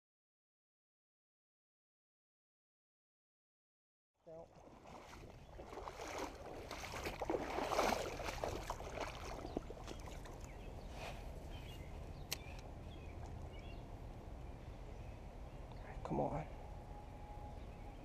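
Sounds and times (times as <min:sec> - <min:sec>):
creek water running: 0:04.2 - 0:11.0.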